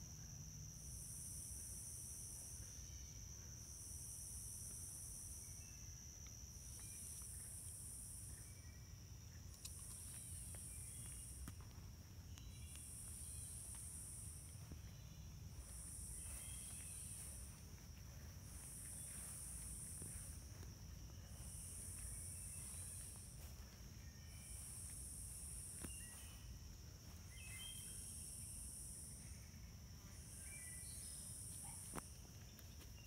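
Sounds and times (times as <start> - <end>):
high insect buzzing call: 0.0 - 32.0
high-pitched insect trill: 0.0 - 33.0.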